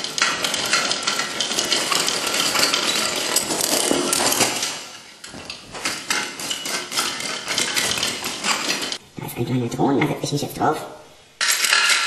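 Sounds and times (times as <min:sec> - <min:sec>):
fast dense clattering and rattling: 0:00.0 - 0:04.8, 0:05.7 - 0:09.0.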